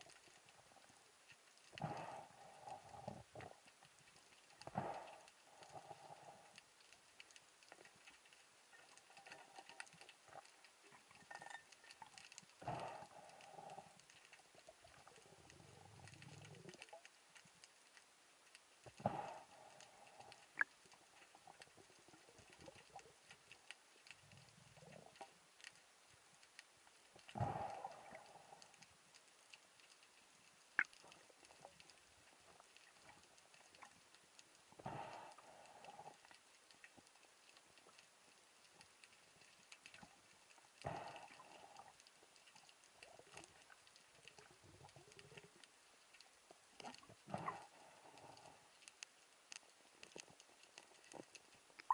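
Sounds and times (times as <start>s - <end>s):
underwater crackle of fine clicks: 0.0s - 51.9s.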